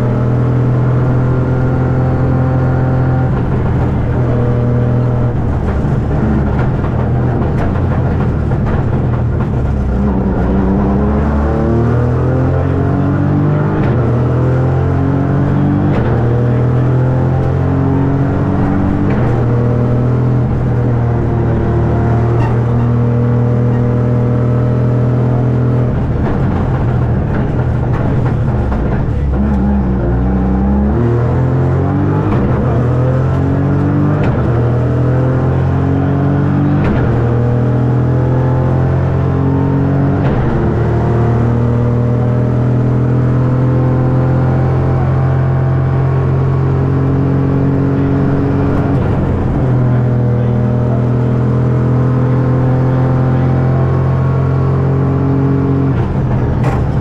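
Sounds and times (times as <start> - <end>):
rally car engine revving: 0.0 - 57.0.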